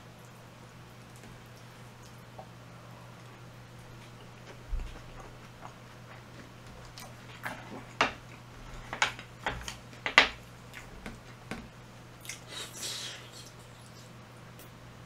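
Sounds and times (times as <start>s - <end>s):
person chewing: 1.5s - 9.8s, 12.2s - 14.1s.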